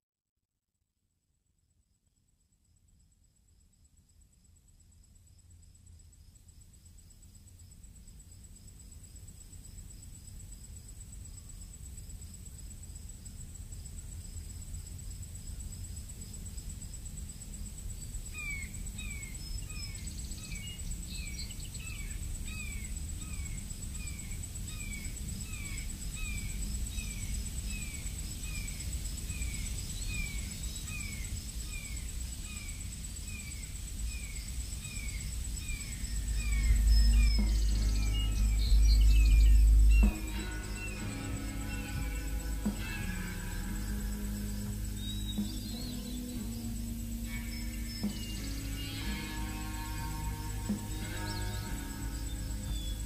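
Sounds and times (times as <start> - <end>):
high whine: 35.6 - 53.0
low rumble: 35.8 - 53.0.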